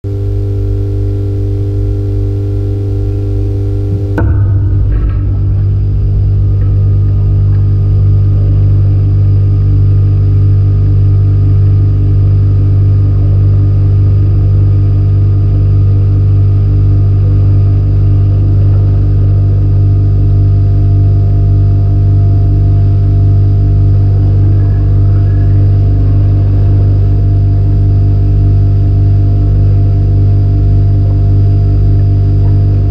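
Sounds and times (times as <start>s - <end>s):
refrigerator hum: 0.0s - 32.9s.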